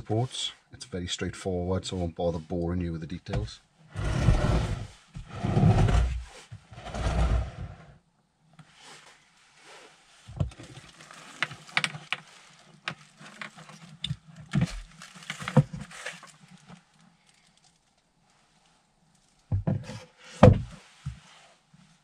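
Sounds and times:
rustling: 0:08.7 - 0:22.0.

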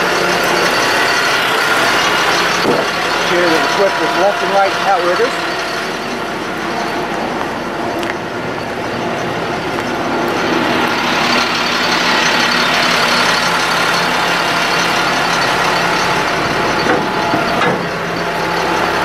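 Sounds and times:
diesel truck engine running: 0:00.0 - 0:19.0
hydraulic pump whine: 0:00.0 - 0:19.0.

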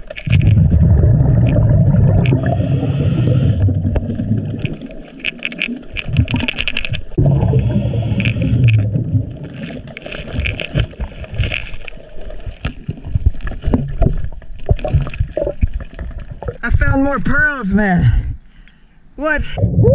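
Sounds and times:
exhaled bubbles rushing: 0:00.2 - 0:11.4
diver inhaling through regulator: 0:02.3 - 0:03.9, 0:07.4 - 0:08.9.

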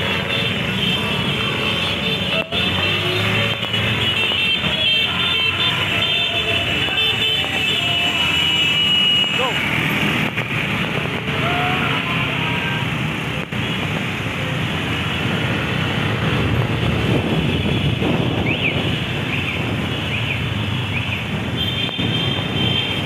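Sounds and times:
motorcycle engines running: 0:00.0 - 0:08.4
wind on microphone: 0:16.3 - 0:19.9.

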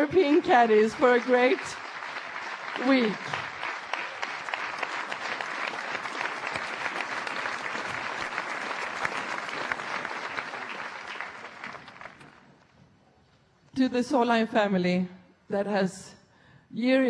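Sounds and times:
crowd applauding: 0:00.0 - 0:12.6.

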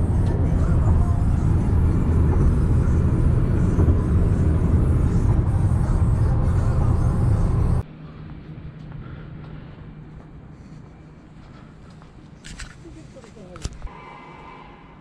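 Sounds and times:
helicopter engine and rotor rumble: 0:00.0 - 0:07.8.

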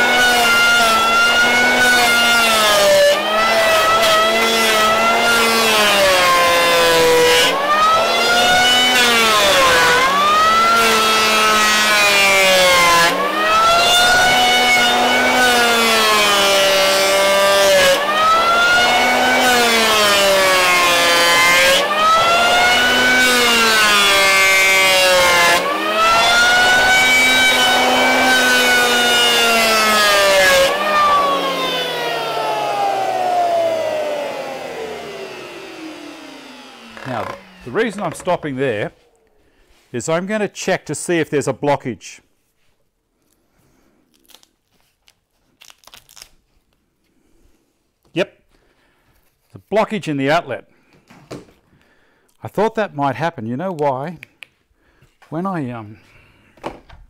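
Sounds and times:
electric planer cutting wood: 0:00.0 - 0:39.3.

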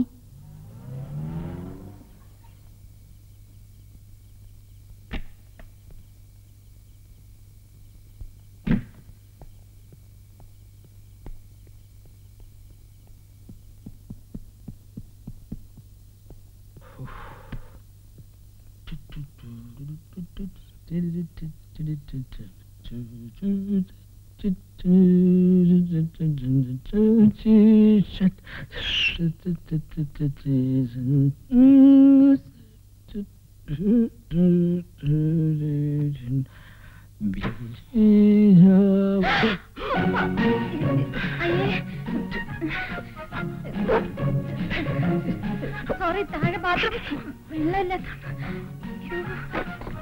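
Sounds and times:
man humming: 0:00.0 - 0:02.2, 0:16.8 - 0:17.8, 0:18.8 - 0:28.2, 0:28.8 - 0:36.5, 0:37.2 - 0:45.8
low hum: 0:00.0 - 0:28.0.

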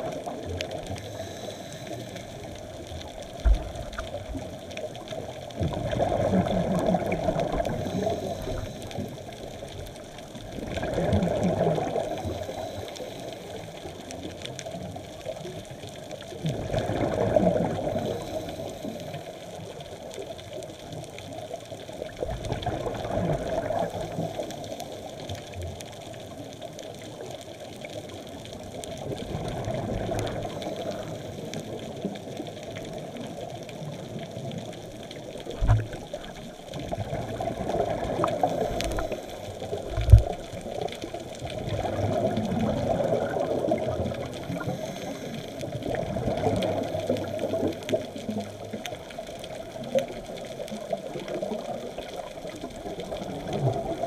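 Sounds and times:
underwater hiss: 0:00.0 - 0:15.0, 0:16.3 - 0:19.9, 0:22.1 - 0:26.2, 0:29.3 - 0:48.7
underwater exhaled bubbles: 0:00.0 - 0:54.0.

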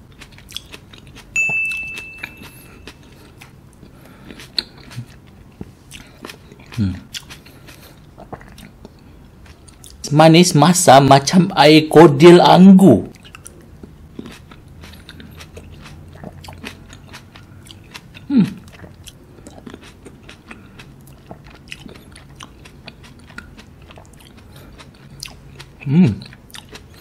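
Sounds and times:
chewing grapes: 0:00.0 - 0:01.4, 0:02.2 - 0:10.0, 0:13.0 - 0:27.0
person humming: 0:06.8 - 0:07.1, 0:18.3 - 0:18.6, 0:25.8 - 0:26.2.

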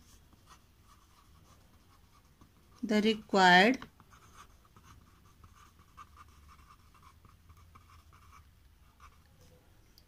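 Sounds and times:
pen scratching on paper: 0:00.0 - 0:09.2.

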